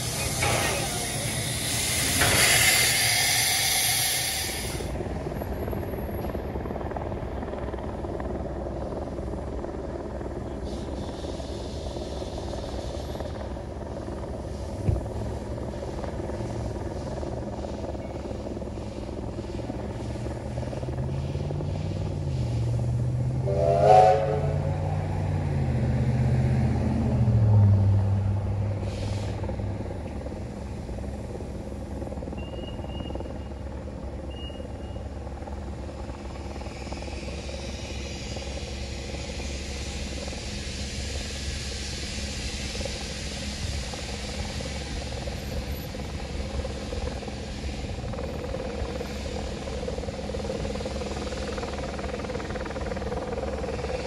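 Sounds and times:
locomotive whistle blast: 0.0s - 4.8s, 23.4s - 25.0s
steam hiss: 0.0s - 5.0s, 10.5s - 13.7s, 14.4s - 25.0s, 28.8s - 31.8s, 35.8s - 54.0s
low drone: 0.0s - 54.0s
steam locomotive running: 0.0s - 54.0s.

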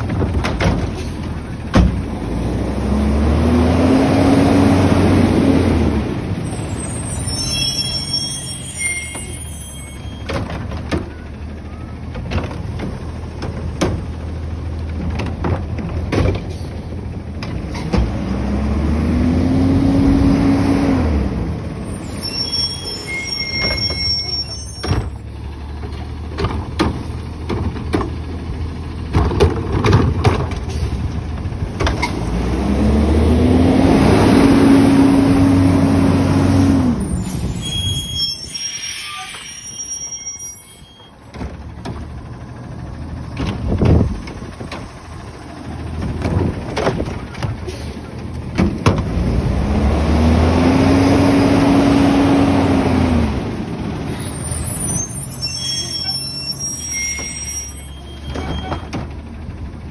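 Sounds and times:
garbage truck engine revving: 0.0s - 7.2s, 16.5s - 24.2s, 25.0s - 38.0s, 41.6s - 57.6s.

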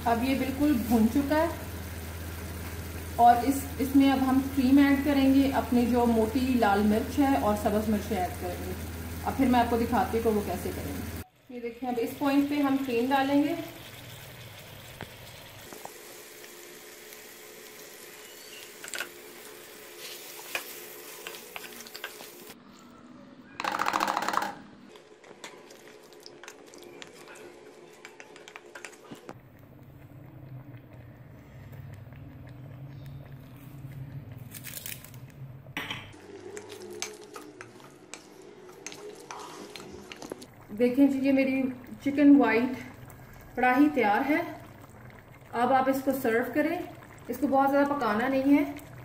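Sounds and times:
chicken sizzling in a pot: 0.0s - 22.6s, 35.8s - 49.0s
low steady hum: 29.2s - 49.0s
clinks and scrapes in a pot: 35.8s - 40.5s.

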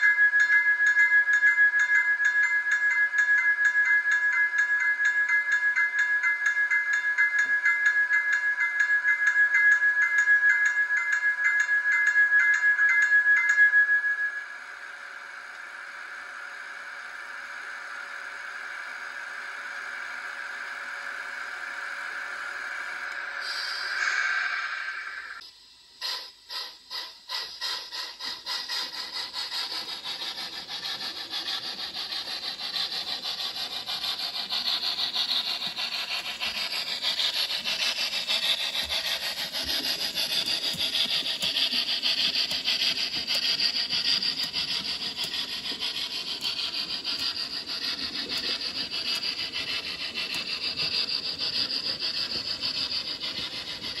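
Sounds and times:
steam locomotive chuffing: 18.2s - 54.0s.

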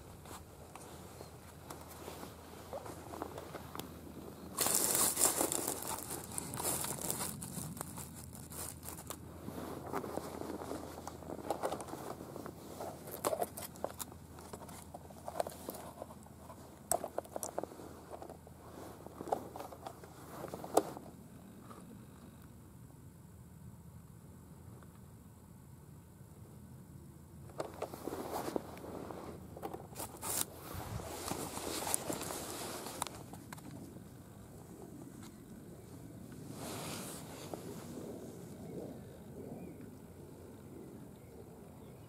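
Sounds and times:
rustling and crinkling handling noise: 0.0s - 21.8s, 27.5s - 38.9s.

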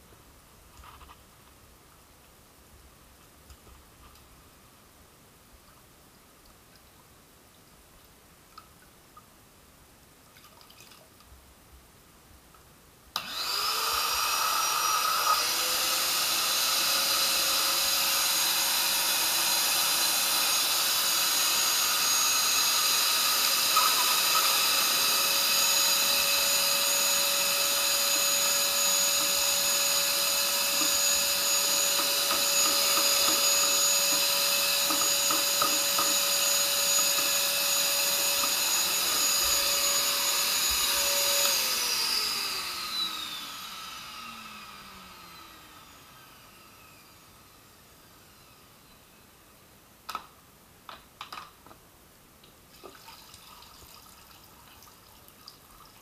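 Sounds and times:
vacuum cleaner motor whine: 13.2s - 49.2s.

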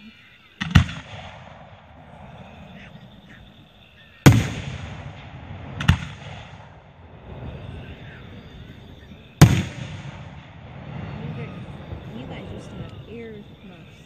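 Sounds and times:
rolling echo: 0.6s - 14.0s
firework shells bursting: 4.2s - 7.5s, 9.4s - 13.1s.

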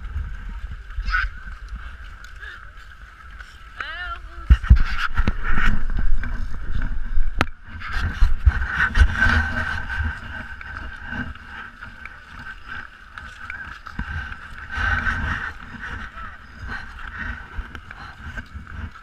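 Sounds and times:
low rumble: 4.4s - 19.0s.

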